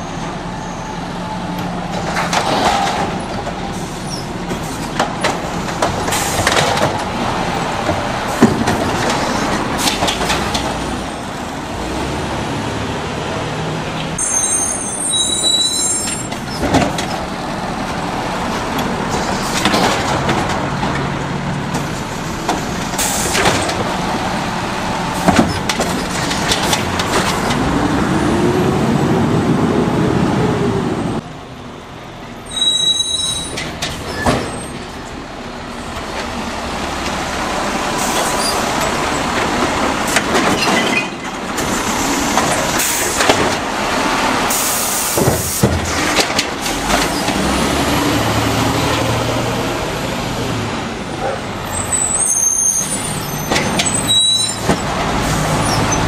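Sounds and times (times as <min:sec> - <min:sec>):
air brakes squealing and hissing: 0:00.0 - 0:01.5, 0:03.7 - 0:05.0, 0:06.0 - 0:06.6, 0:14.2 - 0:16.7, 0:22.9 - 0:23.8, 0:32.4 - 0:35.2, 0:37.9 - 0:39.2, 0:40.0 - 0:43.4, 0:44.4 - 0:45.8, 0:51.2 - 0:56.0
diesel engine revving: 0:00.0 - 0:32.4, 0:34.0 - 0:56.0.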